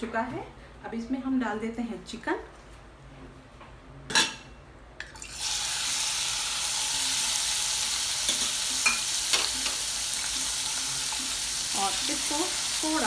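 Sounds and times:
chicken sizzling in oil: 0:05.2 - 0:13.0.

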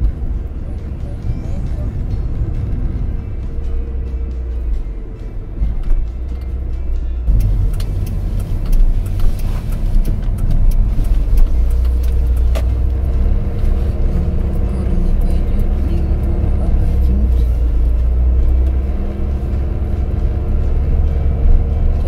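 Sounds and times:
car engine and tyres rumbling: 0:00.0 - 0:22.0
scattered clicks: 0:05.8 - 0:16.3.

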